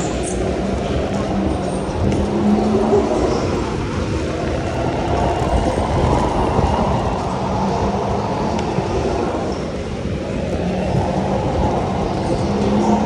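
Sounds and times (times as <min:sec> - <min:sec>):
go-kart engine rumble: 0:00.0 - 0:13.0.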